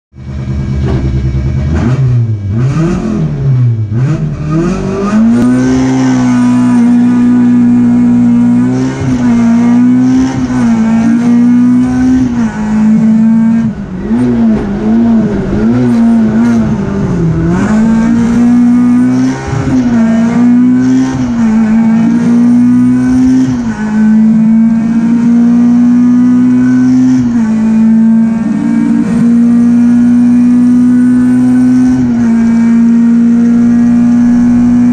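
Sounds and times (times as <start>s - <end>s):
rally car engine accelerating: 0.2s - 34.9s.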